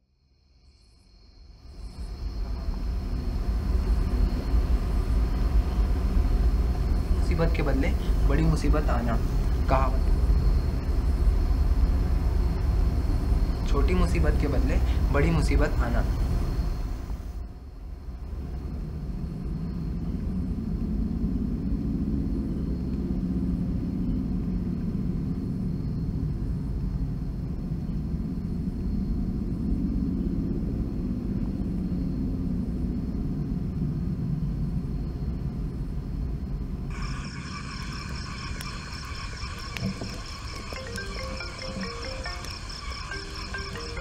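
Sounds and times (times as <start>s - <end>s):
frogs and insects calling: 0.0s - 44.0s
low wavering rumble: 1.7s - 25.0s, 36.2s - 44.0s.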